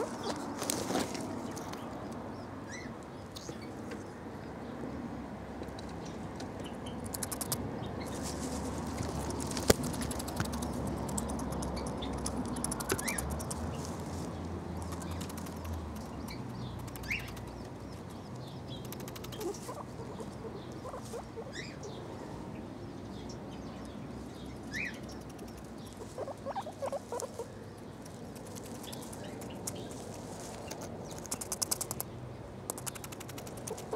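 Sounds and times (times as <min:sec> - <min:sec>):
guinea pig chirps: 0:06.9 - 0:07.7, 0:09.4 - 0:13.6, 0:14.8 - 0:21.9, 0:24.6 - 0:30.0, 0:30.7 - 0:32.1, 0:32.7 - 0:33.9
guinea pig chewing grass: 0:07.0 - 0:14.2, 0:14.8 - 0:21.5, 0:24.7 - 0:32.1, 0:32.7 - 0:33.9.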